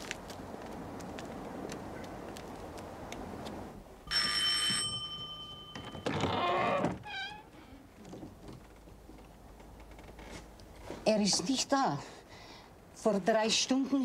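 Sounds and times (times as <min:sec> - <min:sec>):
doorbell ringing: 0:04.1 - 0:06.8.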